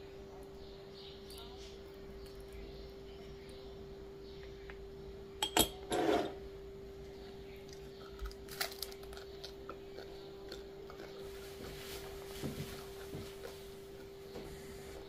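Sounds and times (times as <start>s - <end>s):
faint steady hum: 0.0s - 15.0s
crunchy bite and chewing: 7.7s - 11.4s.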